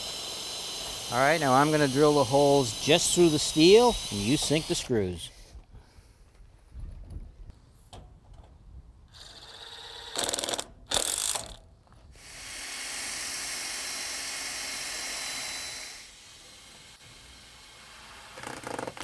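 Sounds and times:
drill boring through steel: 0.0s - 5.4s, 12.2s - 19.0s
impact driver driving screw into steel: 0.8s - 4.9s.

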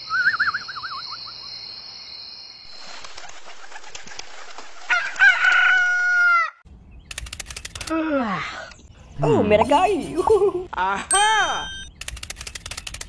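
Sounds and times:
birds' wings flapping: 2.7s - 5.8s, 7.1s - 7.9s
rooster crowing: 4.9s - 6.6s.

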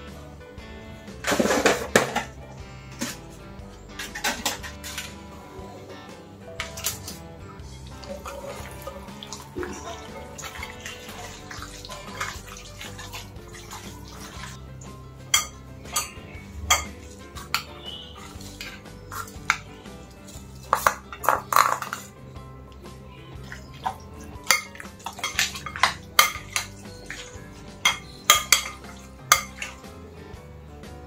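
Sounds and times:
background music: 0.0s - 31.0s
kitchenware clinking: 1.2s - 3.2s, 3.8s - 5.2s, 15.3s - 22.2s, 23.4s - 29.8s
spoon scraping steel bowl: 15.3s - 22.1s, 23.9s - 29.8s.

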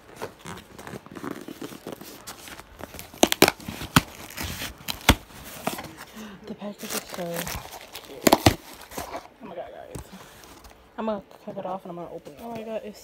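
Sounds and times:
cardboard box tearing: 0.0s - 6.0s, 6.8s - 9.3s
cardboard rustling and crinkling: 0.0s - 9.4s.

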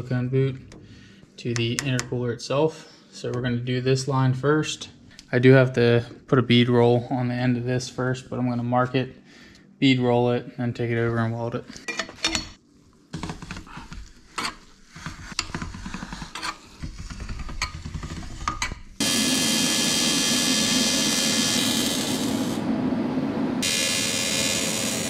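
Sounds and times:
welder arc buzzing with hiss: 19.0s - 22.8s, 23.5s - 25.0s.

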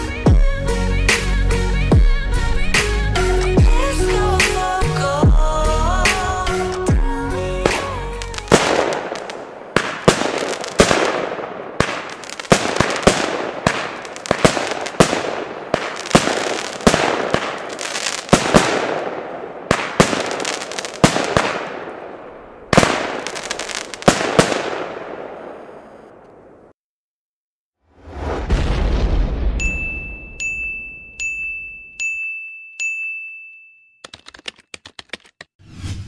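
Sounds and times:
background music: 0.0s - 8.9s
firework battery bangs: 7.6s - 22.0s.

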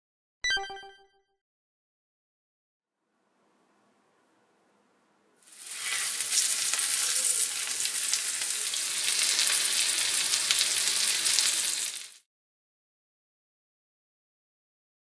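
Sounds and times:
fish sizzling in frying pan: 5.4s - 12.3s.

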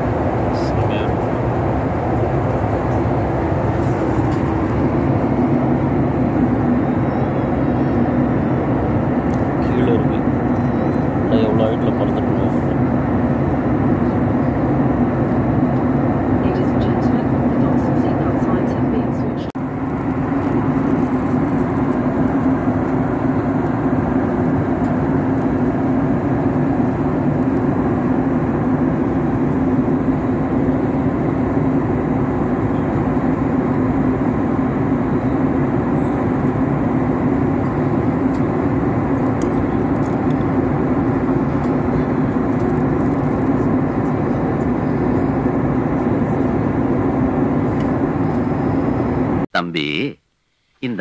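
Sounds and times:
airliner cabin rush: 0.0s - 12.5s.

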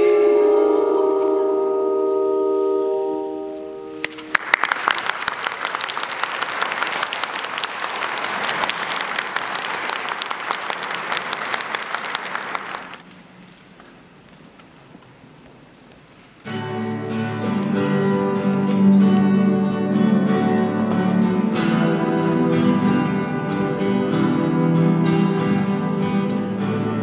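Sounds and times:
woman singing: 0.0s - 2.2s
audience applauding: 4.0s - 13.1s.

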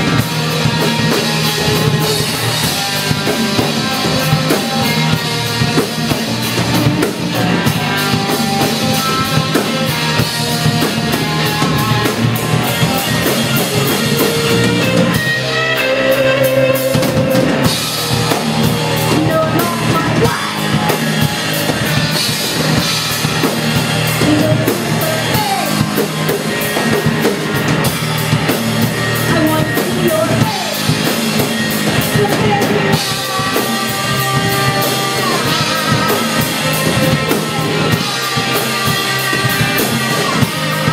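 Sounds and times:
drum kit: 0.0s - 40.9s
electric guitar: 0.0s - 40.9s
person singing: 12.7s - 21.5s, 24.1s - 26.3s, 29.2s - 40.9s.

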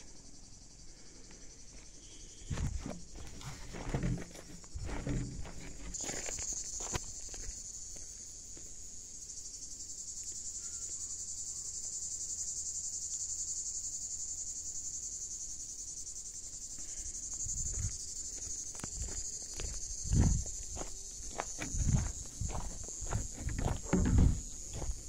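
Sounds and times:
insect chorus buzzing: 0.0s - 25.0s
footsteps on dirt path: 1.7s - 8.7s, 16.8s - 25.0s.

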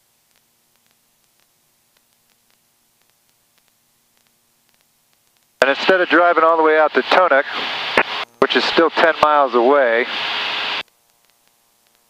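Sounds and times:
faint steady hiss: 0.0s - 12.0s
faint ticks: 0.2s - 5.6s, 10.8s - 12.0s.

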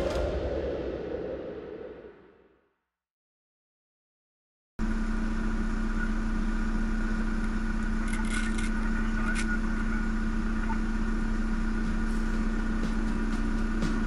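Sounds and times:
van engine droning: 4.8s - 14.0s.

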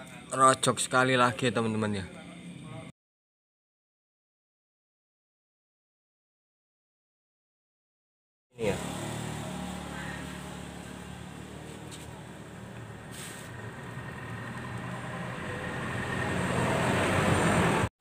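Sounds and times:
vehicle engine running: 8.6s - 17.8s.

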